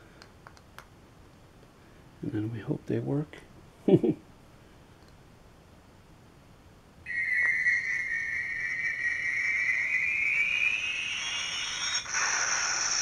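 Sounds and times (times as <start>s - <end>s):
electronic whine rising in pitch: 7.1s - 13.0s.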